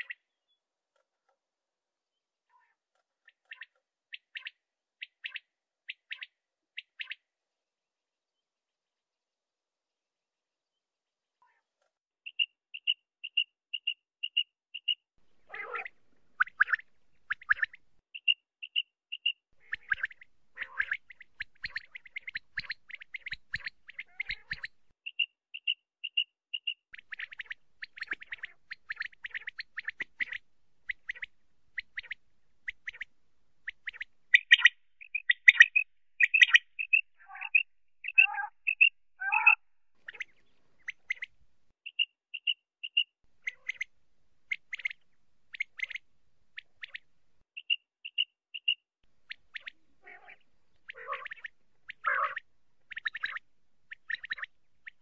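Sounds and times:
quail calling: 12.3s - 41.3s, 41.9s - 43.9s, 44.5s - 46.0s, 46.8s - 55.0s.

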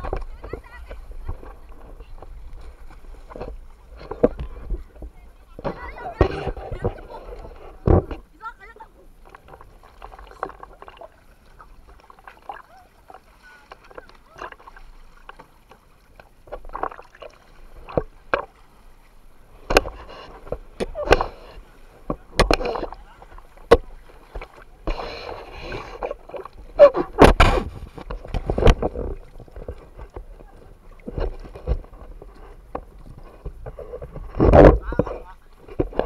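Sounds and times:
sea water splashing: 0.0s - 36.0s
sharp knocks and thuds: 22.0s - 23.0s, 26.8s - 30.3s, 31.1s - 36.0s.

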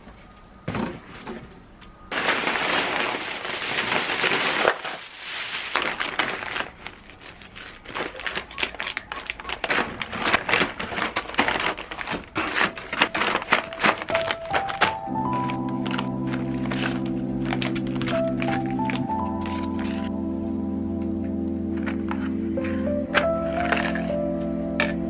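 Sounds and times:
plastic bags crinkling: 2.1s - 20.2s.

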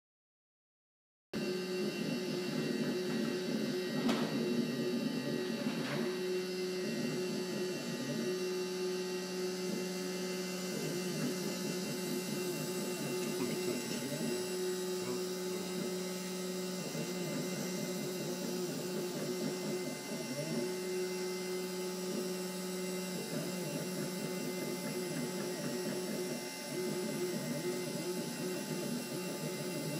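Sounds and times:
humming tone: 1.4s - 29.9s
milling machine motors humming: 1.4s - 29.9s.

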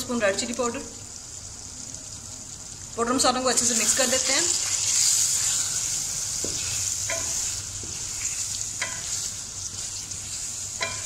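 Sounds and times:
food sizzling in hot oil: 0.0s - 11.0s
spatula scraping a pan: 3.8s - 11.0s.

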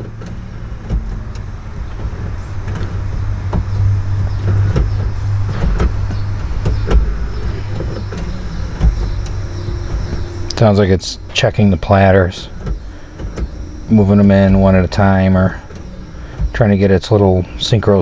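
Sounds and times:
mechanism clicks and knocks: 0.0s - 18.0s
motor hum: 0.0s - 18.0s.

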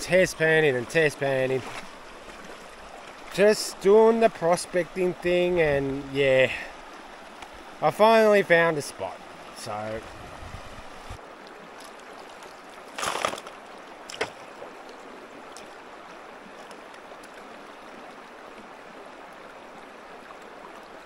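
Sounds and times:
creek water rushing: 0.0s - 21.0s.

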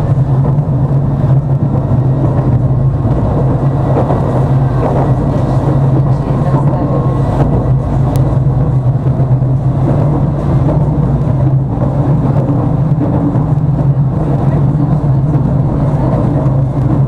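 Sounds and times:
constant low hum: 0.0s - 17.0s
tram wheels rumbling on rails: 0.0s - 17.0s.

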